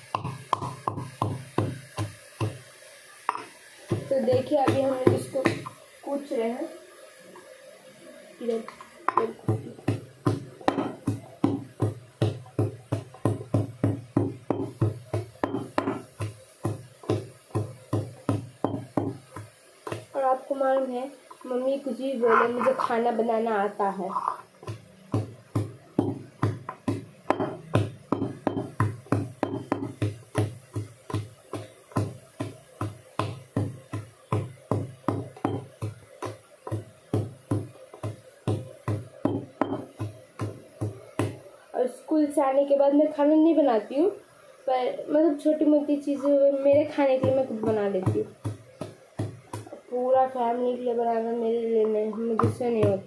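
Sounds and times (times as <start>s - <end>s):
wooden pestle pounding in steel pot: 0.0s - 2.6s, 3.3s - 5.7s, 9.1s - 21.5s, 24.1s - 41.4s, 46.2s - 49.8s, 52.1s - 53.0s.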